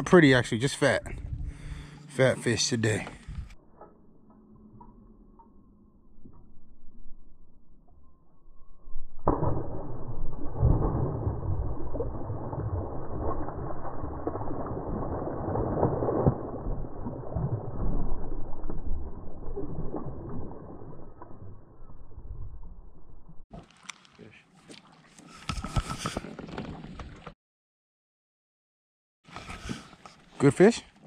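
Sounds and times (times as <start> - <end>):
slowed-down water splash: 9.0 - 23.9.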